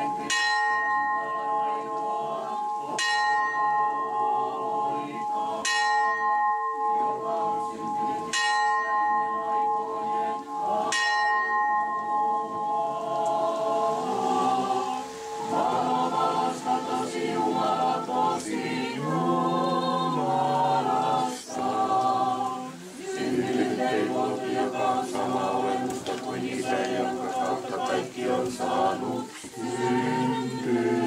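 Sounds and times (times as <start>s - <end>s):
bell ringing: 0.0s - 13.1s
congregation singing a hymn: 0.0s - 31.0s.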